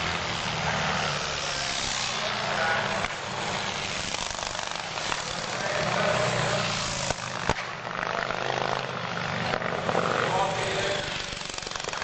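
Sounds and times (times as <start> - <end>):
motorcycle engines running: 0.0 - 12.0
sharp crack: 3.0 - 5.7, 6.9 - 10.4, 11.2 - 12.0.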